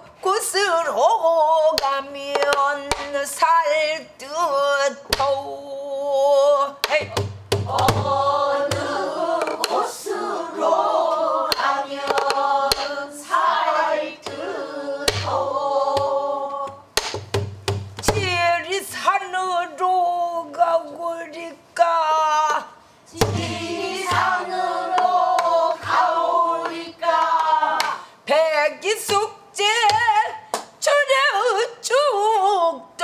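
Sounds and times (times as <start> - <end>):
barrel drum strokes: 7.0 - 10.0, 23.2 - 26.1
group of voices singing: 7.7 - 17.0, 23.1 - 28.4.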